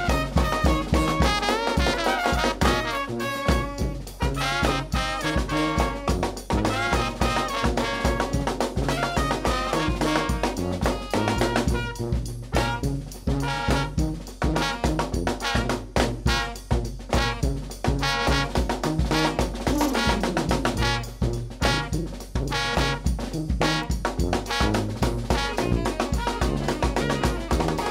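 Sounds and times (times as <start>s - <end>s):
saxophone: 0.0s - 16.6s, 17.2s - 23.0s, 24.5s - 27.9s
bass drum: 0.0s - 27.9s
snare drum: 0.0s - 27.9s
trombone: 0.0s - 27.9s
trumpet: 0.0s - 27.9s
sousaphone bass line: 2.6s - 15.4s, 18.8s - 27.9s.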